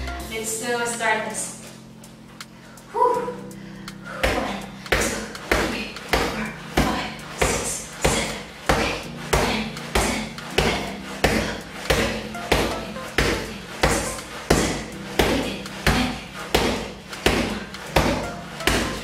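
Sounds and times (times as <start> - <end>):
boxing gloves hitting punching ball: 4.2 - 19.0.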